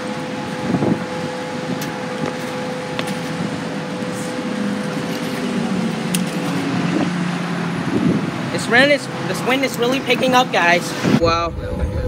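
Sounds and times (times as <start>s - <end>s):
strong wind blowing: 0.0s - 9.4s.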